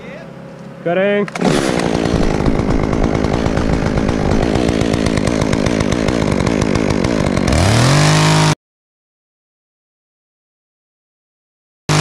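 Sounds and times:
chainsaw cutting a limb: 0.6s - 8.6s.

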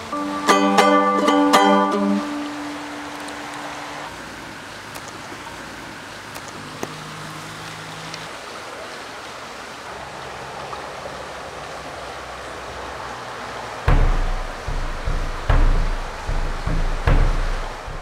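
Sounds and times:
rushing outdoor ambience: 0.0s - 18.0s
faint low held notes: 13.9s - 18.0s.

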